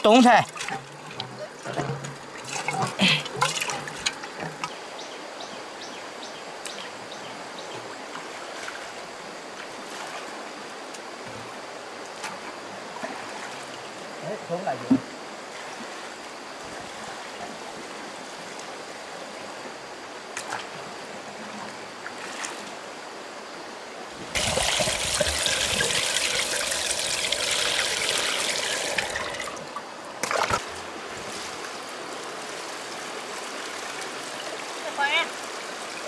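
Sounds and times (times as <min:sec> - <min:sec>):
gushing splashing water: 0:00.0 - 0:04.7, 0:24.3 - 0:36.0
water trickling: 0:00.0 - 0:05.6, 0:24.3 - 0:36.0.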